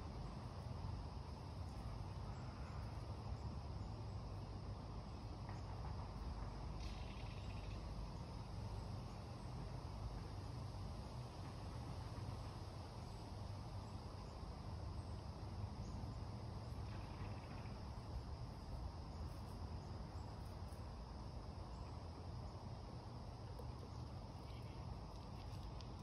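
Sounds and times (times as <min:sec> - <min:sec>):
crickets chirping: 0:00.0 - 0:26.0
low steady rumble: 0:00.0 - 0:26.0
faint light clicks: 0:24.5 - 0:26.0.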